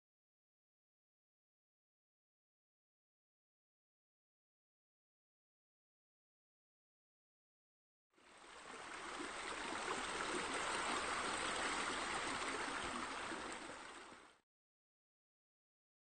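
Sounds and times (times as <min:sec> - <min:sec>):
water running and splashing: 0:08.3 - 0:14.3.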